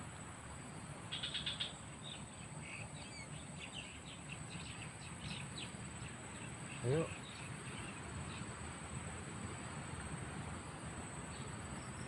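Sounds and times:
outdoor background noise: 0:00.0 - 0:12.0
birds chirping: 0:01.1 - 0:08.5.

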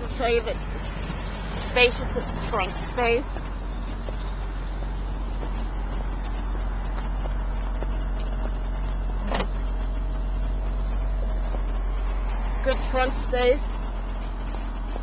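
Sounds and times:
car engine idling: 0:00.0 - 0:15.0
trunk lid latch click: 0:09.2 - 0:09.6.

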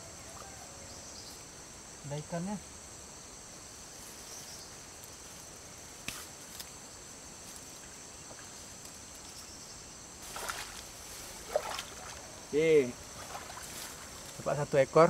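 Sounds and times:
insects chorus: 0:00.0 - 0:15.0
grass rustling: 0:01.1 - 0:15.0
splashing in muddy water: 0:10.2 - 0:14.2.

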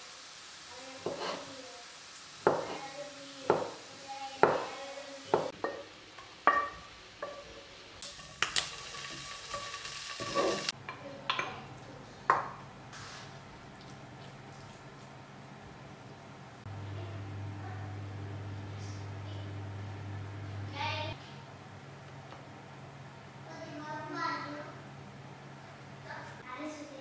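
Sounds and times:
spatula scraping frying pan: 0:01.0 - 0:01.5, 0:07.2 - 0:10.8
pan and bowls clinking: 0:05.6 - 0:11.6.

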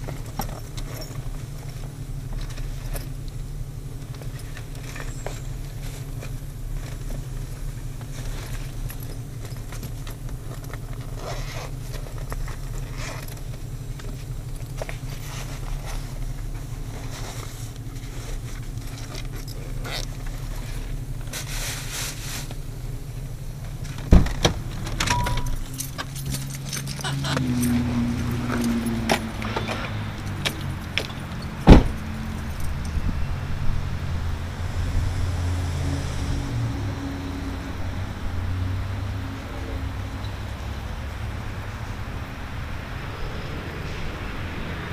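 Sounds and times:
vehicle engine idling: 0:00.0 - 0:44.9
clothing rustling: 0:04.2 - 0:22.8
light clicks and rattles: 0:23.6 - 0:33.0
loud thump: 0:24.0 - 0:25.5, 0:31.6 - 0:32.0.

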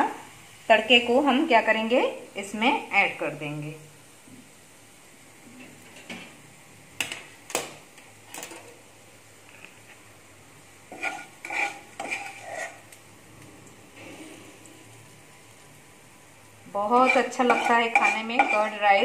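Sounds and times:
metal spoon clinking and scraping: 0:10.9 - 0:12.8, 0:17.0 - 0:18.9.

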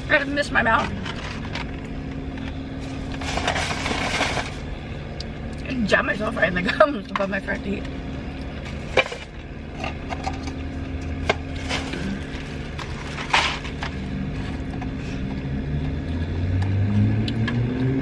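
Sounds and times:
steady low hum: 0:00.0 - 0:18.0
plastic bag crinkling: 0:00.8 - 0:04.8, 0:11.2 - 0:14.1
chips crackling in bag: 0:02.8 - 0:04.7, 0:11.4 - 0:14.2.

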